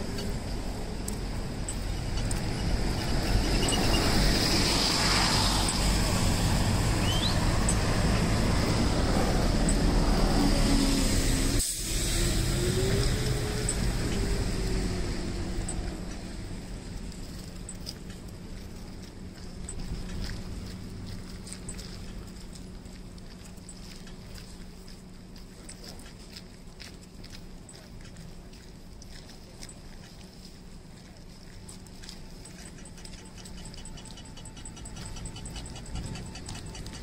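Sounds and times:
bus driving past: 0.0s - 22.5s, 31.5s - 37.0s
low engine hum: 0.0s - 37.0s
street traffic: 0.0s - 37.0s.

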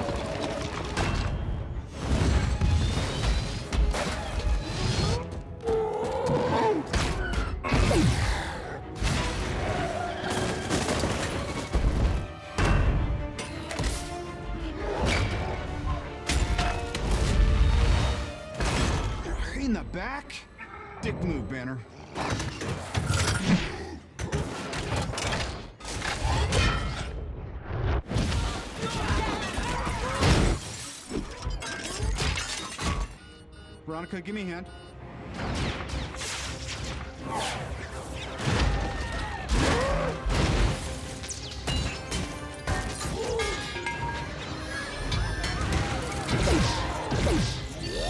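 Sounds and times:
film music: 0.0s - 48.0s
electronic tones: 32.6s - 35.2s, 47.8s - 48.0s.

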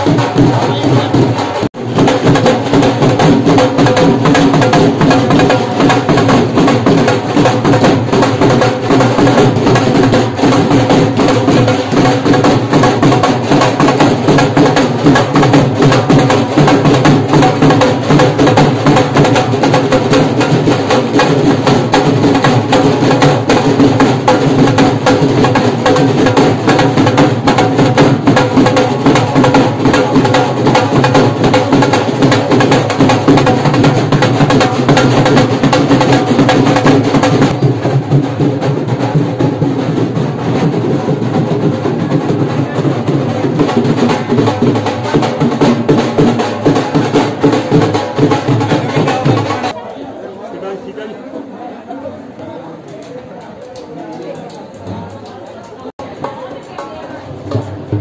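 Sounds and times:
drums beaten with sticks: 0.0s - 49.8s, 53.7s - 58.0s.

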